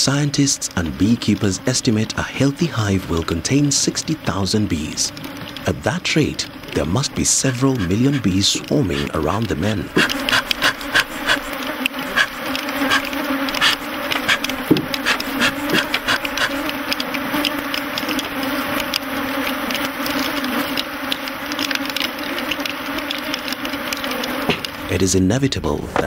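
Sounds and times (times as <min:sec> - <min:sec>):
bees buzzing: 0:03.6 - 0:25.2
sharp clicks and knocks: 0:09.0 - 0:17.6.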